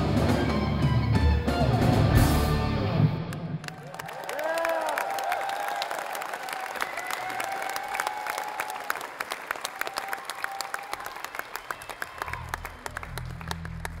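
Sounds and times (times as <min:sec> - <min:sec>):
audience clapping: 0:03.2 - 0:14.0
audience cheering: 0:03.3 - 0:14.0.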